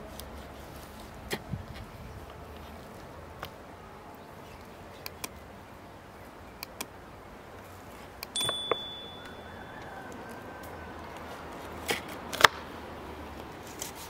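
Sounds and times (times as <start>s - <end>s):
ringing metallic clink: 8.3s - 9.8s.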